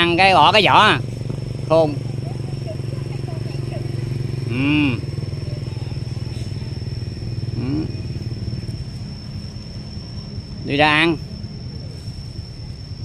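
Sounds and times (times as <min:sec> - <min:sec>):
motorcycle engine idling: 0:00.0 - 0:13.0
person calling out: 0:04.5 - 0:05.1.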